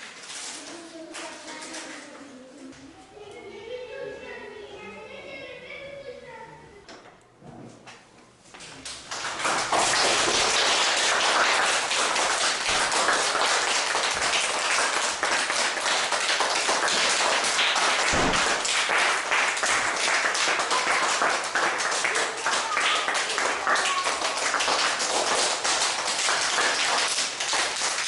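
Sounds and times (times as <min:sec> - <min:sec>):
children clapping: 0:08.9 - 0:28.0
low thump: 0:18.2 - 0:18.6.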